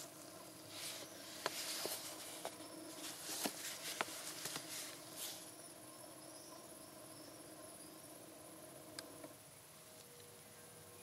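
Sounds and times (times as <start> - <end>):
gloves rustling against plastic: 0.0 - 5.6
faint steady hum: 0.0 - 11.0.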